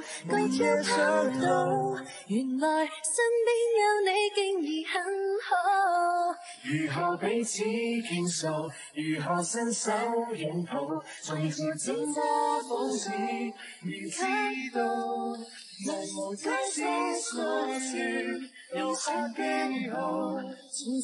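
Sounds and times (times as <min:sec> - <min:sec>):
person singing pop ballad: 0:00.0 - 0:03.3.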